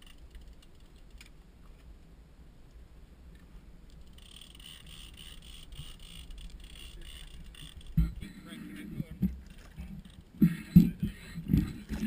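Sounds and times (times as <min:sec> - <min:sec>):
boat engine rumble: 0:03.6 - 0:12.0
high-pitched ticking whine: 0:03.9 - 0:09.4.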